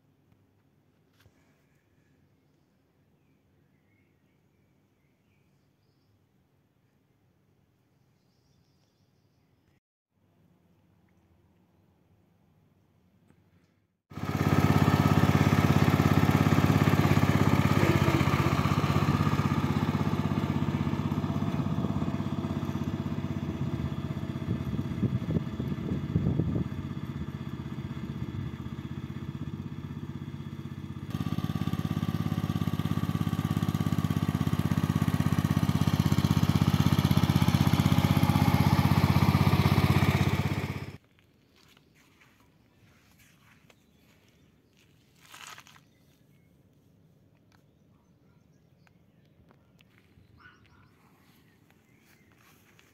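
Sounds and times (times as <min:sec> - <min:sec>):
lawn tractor engine running: 0:14.1 - 0:41.0.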